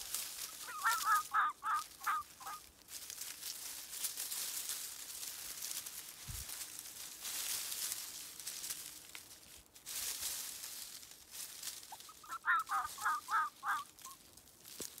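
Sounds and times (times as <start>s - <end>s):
leaf litter rustling: 0.0s - 15.0s
fox kit short calls: 0.5s - 2.7s, 11.8s - 14.2s.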